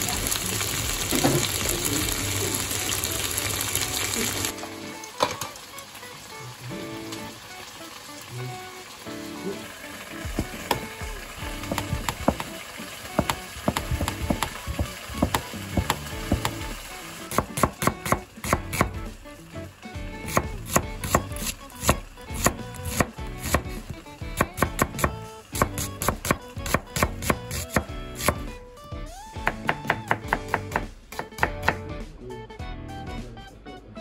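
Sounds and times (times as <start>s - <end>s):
knife chopping on cutting board: 10.2s - 12.5s, 13.2s - 19.1s, 20.3s - 28.5s, 29.4s - 31.9s.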